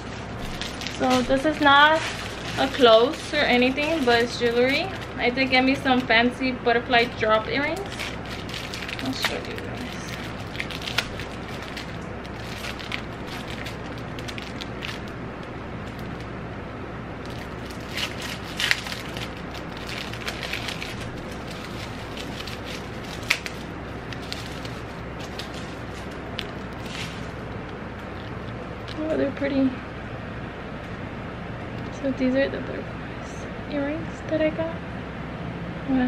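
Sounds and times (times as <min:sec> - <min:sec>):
plastic bag crinkling: 0:00.0 - 0:16.3, 0:17.2 - 0:29.3
low hum: 0:00.0 - 0:36.0.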